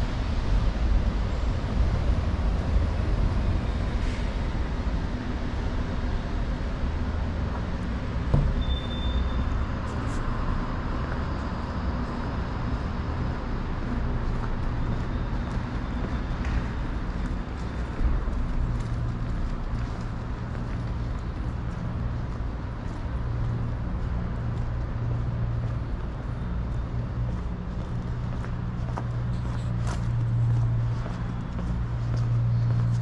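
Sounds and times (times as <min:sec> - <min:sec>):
traffic rumble: 0:00.0 - 0:33.0
sharp knock: 0:08.3 - 0:08.9
brief high squeak: 0:08.5 - 0:09.6.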